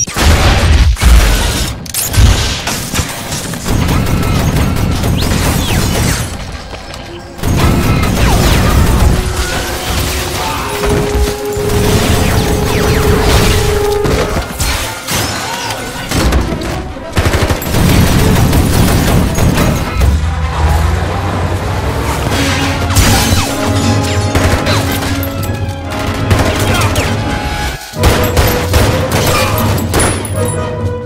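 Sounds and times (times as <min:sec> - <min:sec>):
gunfire bursts: 0:00.0 - 0:06.7, 0:16.1 - 0:20.0
action movie music: 0:00.0 - 0:31.0.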